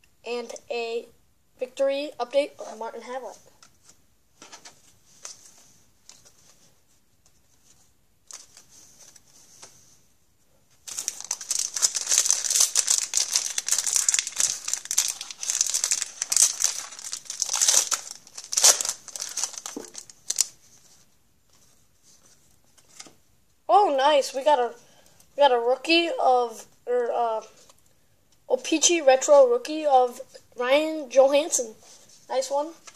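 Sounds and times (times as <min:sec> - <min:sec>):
faint handling rustles: 0:03.3 - 0:23.2
foil wrapper crinkling: 0:10.9 - 0:20.6.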